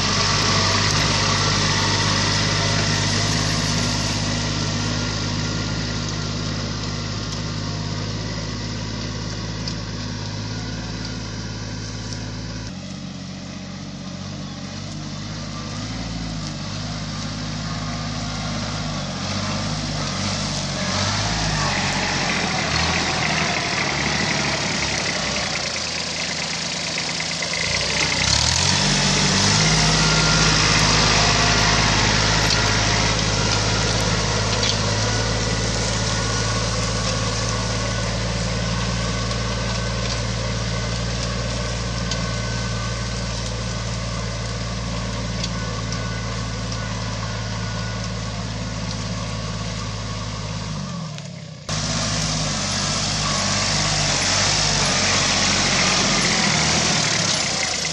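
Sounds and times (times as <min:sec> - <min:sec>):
tractor diesel engine under load: 0:00.0 - 0:57.9.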